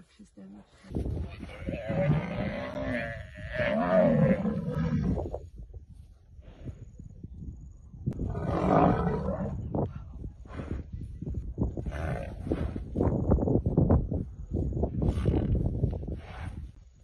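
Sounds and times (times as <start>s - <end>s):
lions growling: 8.3s - 9.6s.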